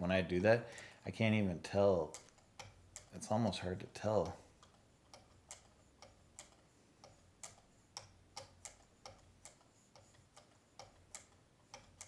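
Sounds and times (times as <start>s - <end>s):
hone ticking on blade: 2.0s - 3.1s.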